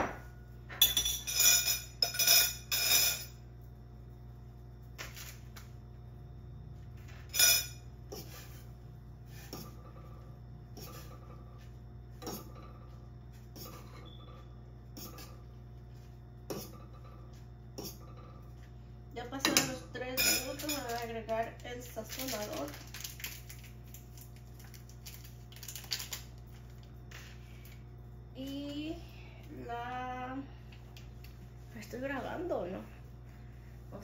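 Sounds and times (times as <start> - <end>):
dishes clinking: 0.0 - 3.4, 7.1 - 8.3.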